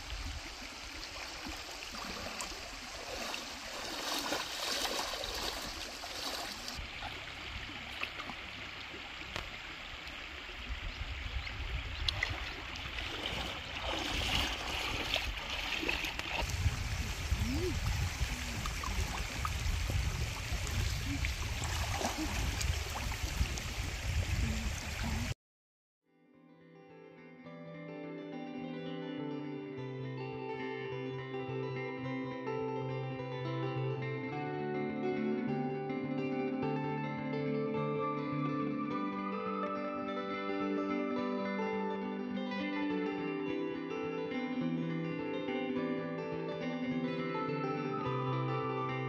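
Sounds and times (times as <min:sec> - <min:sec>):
stream trickling: 0:00.0 - 0:25.4.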